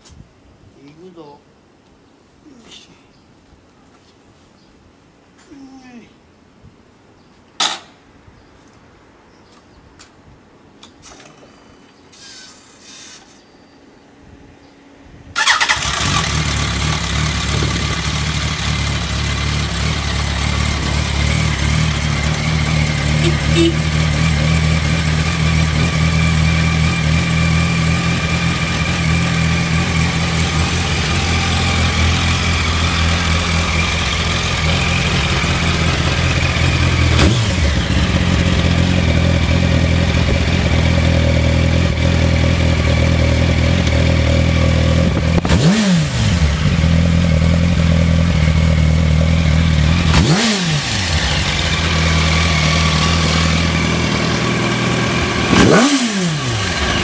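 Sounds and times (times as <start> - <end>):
motorcycle engine idling: 15.4 - 45.5, 46.2 - 57.0.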